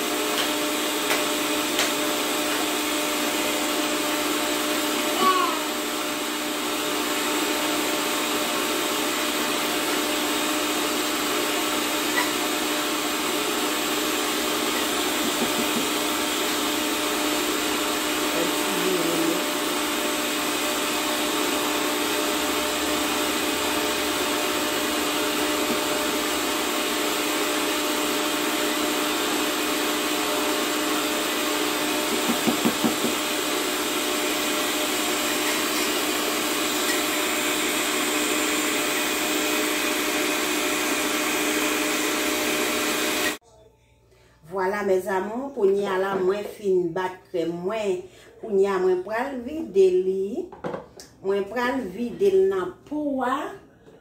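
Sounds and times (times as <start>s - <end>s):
stand mixer whipping cream: 0.0s - 43.4s.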